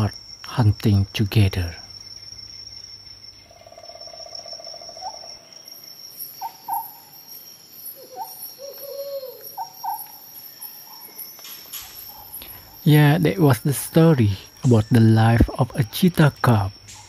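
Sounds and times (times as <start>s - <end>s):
crickets droning: 0.0s - 17.0s
high-pitched animal calls: 6.4s - 7.3s, 7.9s - 12.9s.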